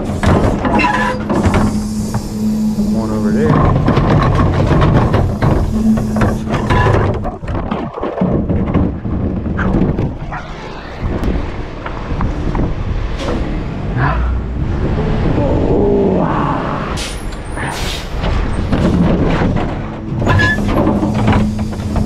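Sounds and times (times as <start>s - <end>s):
knocks and clatter: 0.0s - 13.6s, 18.2s - 22.0s
garbage truck running: 0.0s - 15.3s, 17.0s - 22.0s
rising whine: 1.0s - 7.4s, 9.8s - 17.4s.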